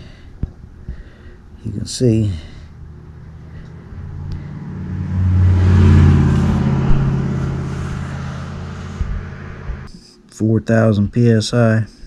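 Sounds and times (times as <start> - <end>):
vehicle engine drone: 0.6 - 9.9.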